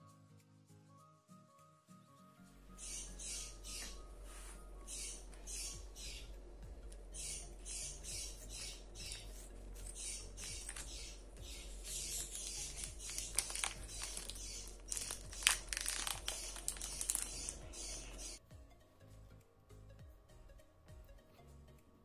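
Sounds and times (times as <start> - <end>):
soft background music with beat: 0.0 - 22.0
plastic wrapper crinkling and tearing: 12.1 - 18.2.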